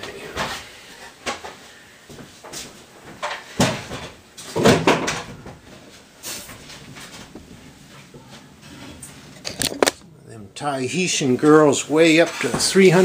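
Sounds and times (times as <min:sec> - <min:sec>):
hollow wooden knocks and clatter: 0:03.1 - 0:05.7.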